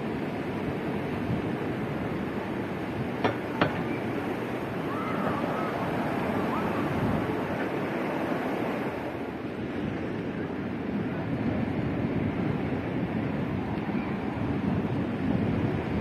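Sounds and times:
ocean surf washing ashore: 0:00.0 - 0:16.0
sharp knocks: 0:03.2 - 0:03.9.

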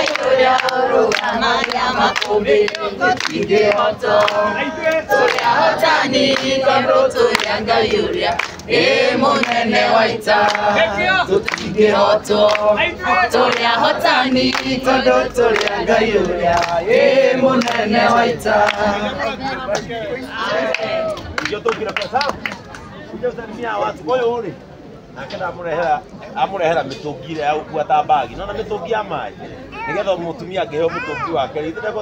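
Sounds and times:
hand-clapping in time: 0:00.0 - 0:10.8, 0:11.4 - 0:12.8, 0:13.4 - 0:18.9
crowd singing together: 0:00.0 - 0:21.2.

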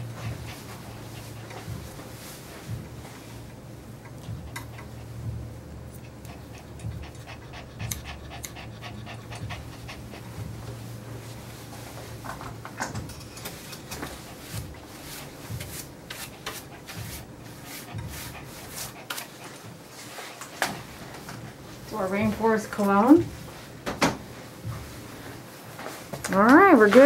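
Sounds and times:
dog panting: 0:00.0 - 0:12.2, 0:13.5 - 0:23.7
steady low hum: 0:00.0 - 0:27.0
grooming tool clicks: 0:07.8 - 0:08.6.

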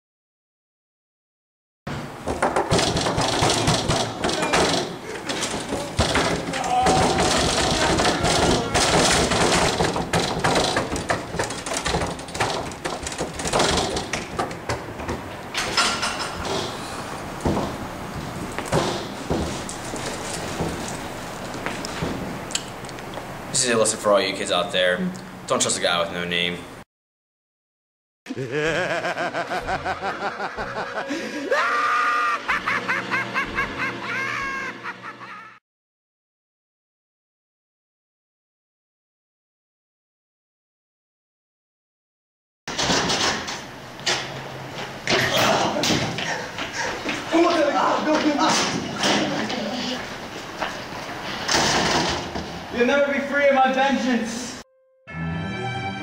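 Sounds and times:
thuds against wooden doors: 0:02.2 - 0:16.7, 0:17.4 - 0:19.6
person laughing high-pitched: 0:28.3 - 0:35.6.

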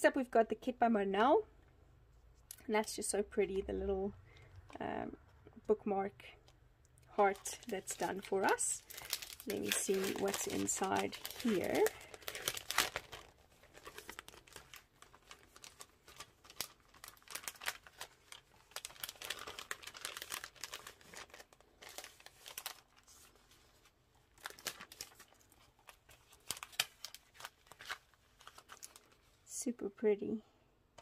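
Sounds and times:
cellophane bag crinkling: 0:07.1 - 0:29.5
paper rustling: 0:07.2 - 0:29.3.

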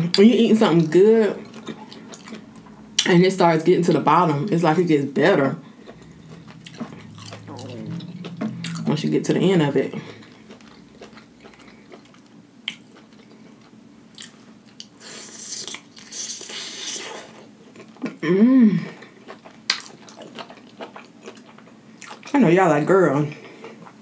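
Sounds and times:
chewing with wet mouth clicks: 0:00.8 - 0:03.2, 0:19.1 - 0:22.4
person humming: 0:05.9 - 0:09.1.

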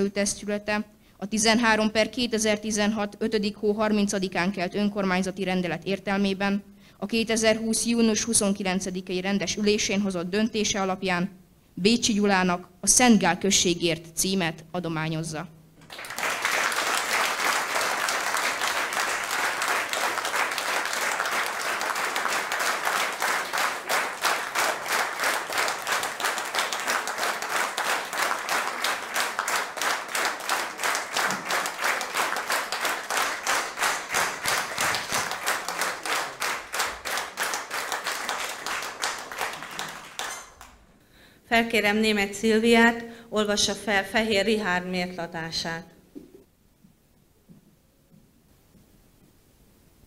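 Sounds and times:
audience applauding: 0:15.8 - 0:40.7
rhythmic clapping in unison: 0:15.8 - 0:40.8.

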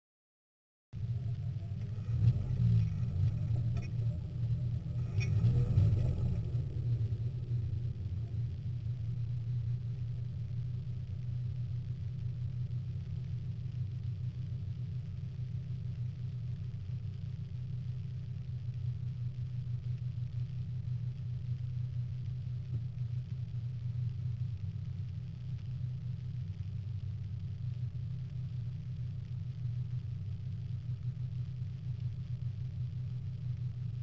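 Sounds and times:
car engine droning in cabin: 0:01.0 - 0:34.0
low road rumble: 0:01.0 - 0:34.0.

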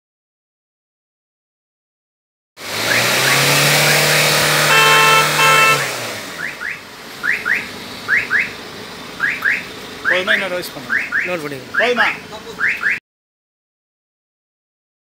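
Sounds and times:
exhaust rushing: 0:02.6 - 0:10.8
car engine revving: 0:02.6 - 0:12.3
short steady tones: 0:03.8 - 0:06.8.

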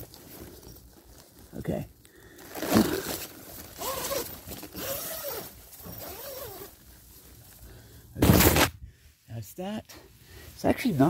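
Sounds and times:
tent zipper being pulled: 0:02.4 - 0:06.8.

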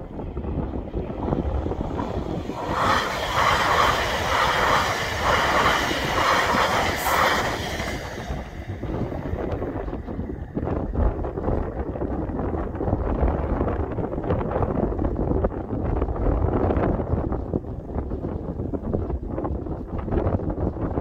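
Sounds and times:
electric train passing: 0:00.0 - 0:11.3
wind buffeting microphone: 0:00.0 - 0:21.0.

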